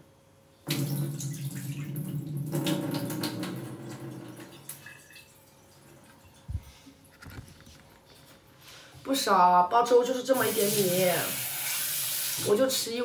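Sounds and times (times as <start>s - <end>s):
tap water running into pot: 0.7s - 6.1s, 10.4s - 12.7s.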